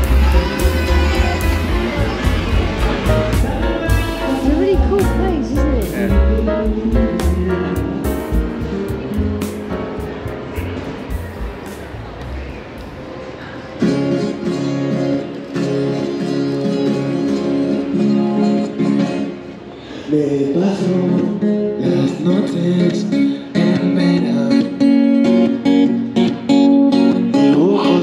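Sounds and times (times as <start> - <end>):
man singing: 0.0 - 8.8, 20.0 - 25.2, 27.2 - 28.0
strummed acoustic guitar: 0.0 - 11.9, 13.7 - 28.0.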